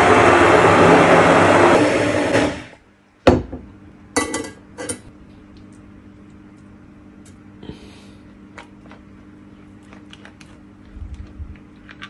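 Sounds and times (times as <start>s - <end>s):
immersion blender running: 0.0s - 2.8s.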